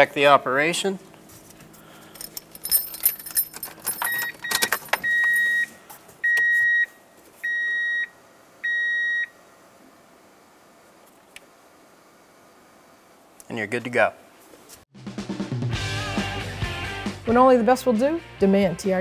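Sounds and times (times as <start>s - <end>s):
keys jangling: 2.1s - 5.5s
electronic warning chime beeping: 4.1s - 6.9s.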